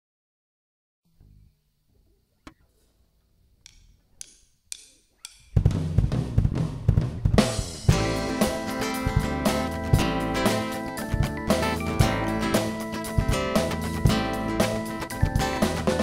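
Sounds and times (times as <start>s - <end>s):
drumstick count-in taps: 3.6s - 5.9s
drum kit groove: 4.7s - 16.0s
sustained bass guitar notes: 5.4s - 16.0s.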